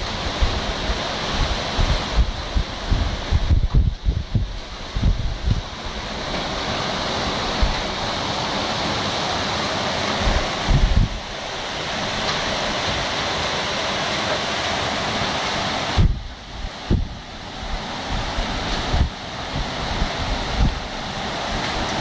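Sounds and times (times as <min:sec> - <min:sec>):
wind buffeting microphone: 0:00.0 - 0:08.2, 0:10.1 - 0:13.0, 0:15.9 - 0:22.0
heavy rain: 0:00.0 - 0:22.0
wind through leafy trees: 0:00.0 - 0:22.0.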